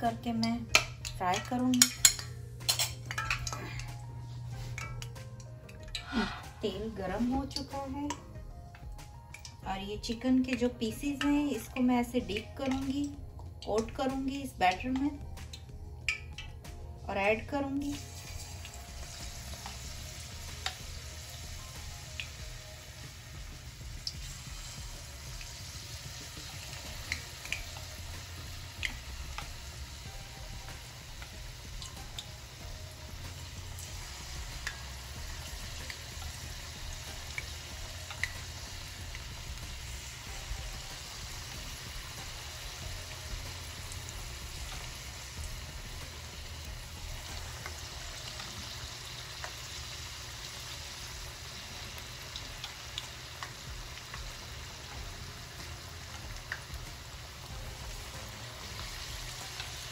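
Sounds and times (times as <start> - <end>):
oil popping and crackling: 0.7 - 4.0, 7.5 - 10.7, 17.8 - 59.9
chicken deep-frying in oil: 12.3 - 59.9.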